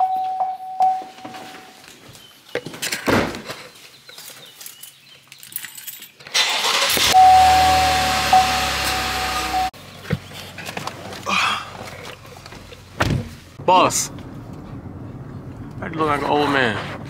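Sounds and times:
car warning chime: 0:00.0 - 0:01.7, 0:07.1 - 0:09.7
thud: 0:03.1 - 0:03.5, 0:13.0 - 0:13.3
car engine starting and running: 0:06.3 - 0:17.0.

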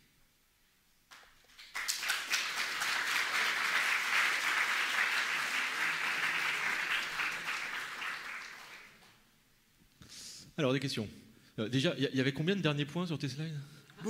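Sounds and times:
audience applauding: 0:01.1 - 0:09.2.

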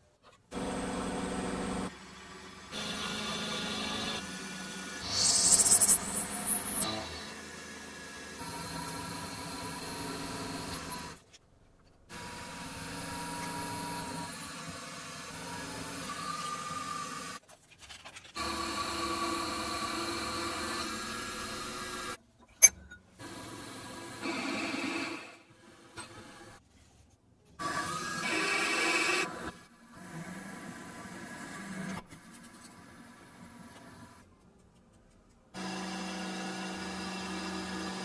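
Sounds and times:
drill cutting into aluminium: 0:02.7 - 0:11.2, 0:18.4 - 0:22.2, 0:35.6 - 0:38.0.

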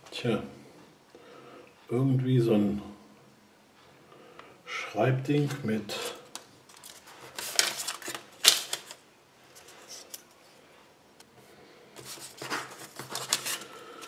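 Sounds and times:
paper rustling: 0:05.4 - 0:10.3, 0:12.0 - 0:14.0.

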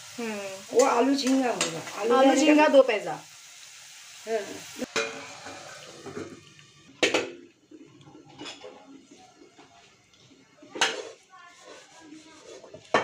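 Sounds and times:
hot pan hissing: 0:00.0 - 0:13.0
metal lid clanking on pan: 0:04.9 - 0:05.6
spatula scraping metal pan: 0:10.7 - 0:13.0.

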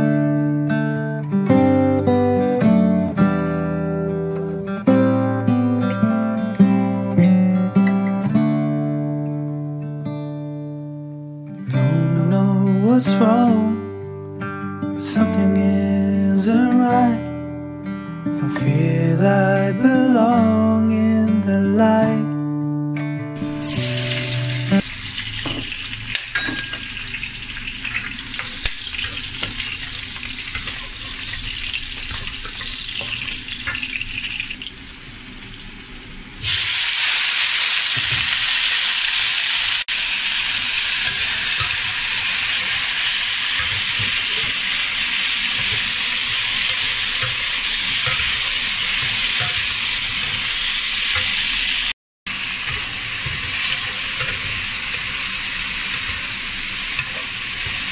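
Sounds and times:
garlic sizzling in hot oil: 0:23.5 - 0:57.9
loud hiss of stir-frying beans: 0:23.6 - 0:25.3, 0:35.8 - 0:57.9
spatula scraping wok: 0:26.9 - 0:34.4, 0:40.6 - 0:57.9.

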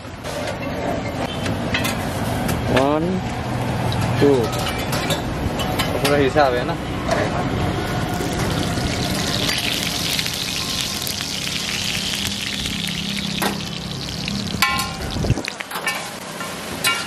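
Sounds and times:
oil sizzling and spattering: 0:07.9 - 0:16.4.

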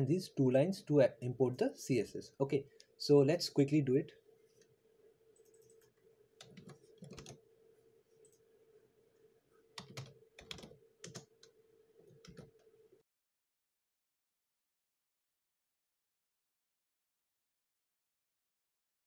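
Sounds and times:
faint steady hum: 0:00.0 - 0:13.0
computer keyboard clicks: 0:05.4 - 0:07.4, 0:09.8 - 0:11.5, 0:12.1 - 0:12.7.

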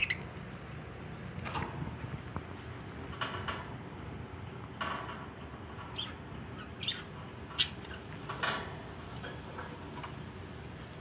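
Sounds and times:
budgerigars chirping: 0:00.0 - 0:00.3, 0:05.9 - 0:08.1.

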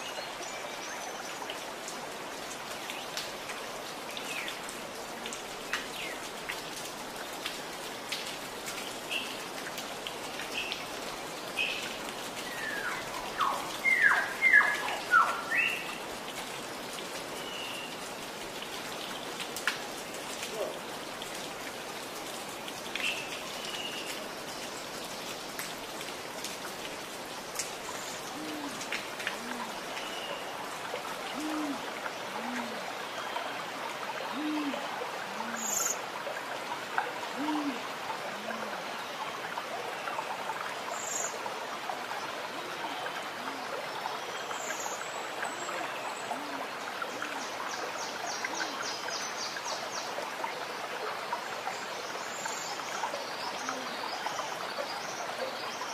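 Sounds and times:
steady rain-like hiss: 0:00.0 - 0:55.9
bird hooting calls: 0:31.3 - 0:32.8, 0:37.4 - 0:37.8.

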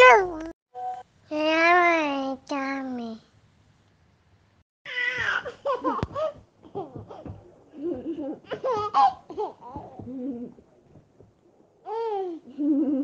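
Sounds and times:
baby laughing and babbling: 0:11.9 - 0:12.6.

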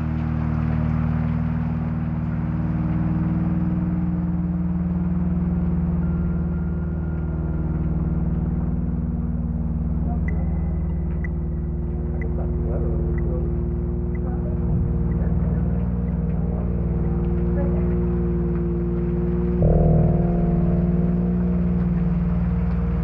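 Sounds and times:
low synthesizer drone: 0:00.0 - 0:23.0
thin high synth tone: 0:09.6 - 0:23.0.

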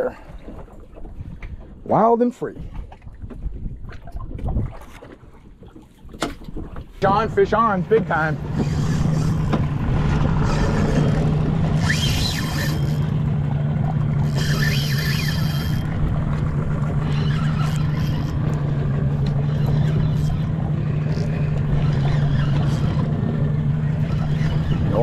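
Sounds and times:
outboard motor humming: 0:00.0 - 0:25.0
high whining bursts: 0:08.4 - 0:13.3, 0:14.2 - 0:16.0
fishing reel cranking: 0:08.5 - 0:09.6, 0:10.3 - 0:13.2, 0:14.2 - 0:16.0, 0:17.0 - 0:18.6.

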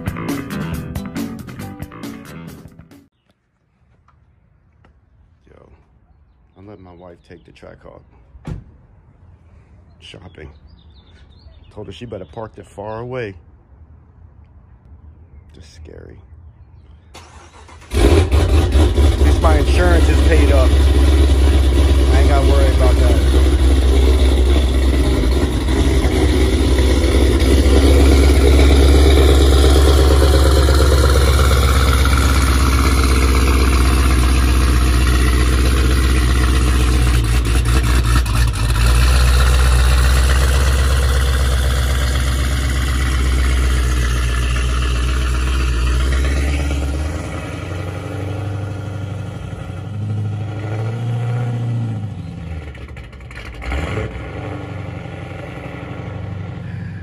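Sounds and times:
engine exhaust drone: 0:17.0 - 0:57.0
engine revving: 0:17.2 - 0:57.0.

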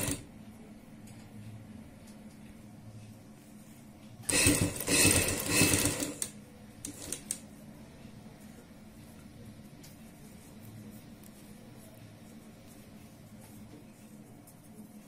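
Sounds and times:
sewing machine running: 0:00.0 - 0:00.2, 0:04.3 - 0:07.4.

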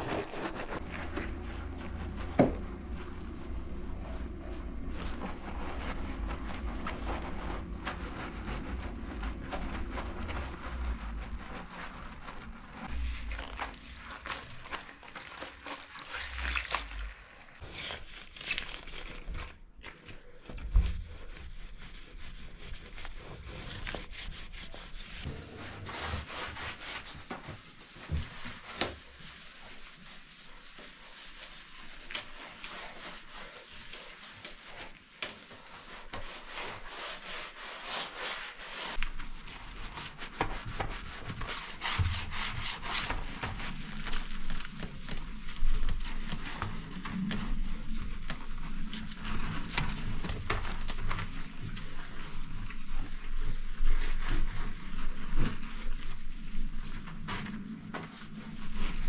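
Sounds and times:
cloth wiping tiles and glass: 0:00.0 - 0:59.0.

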